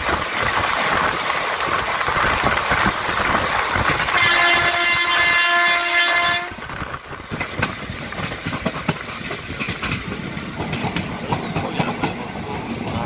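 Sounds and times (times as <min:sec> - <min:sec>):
train wheels clacking over rail joints: 0:00.0 - 0:13.0
train horn blast: 0:04.0 - 0:06.6.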